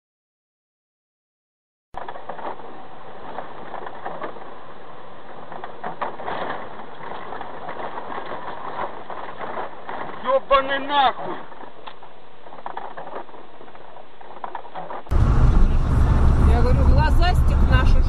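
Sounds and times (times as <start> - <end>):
tyres on wet road: 2.0 - 13.3, 14.0 - 18.0
vehicle engine: 15.1 - 18.0.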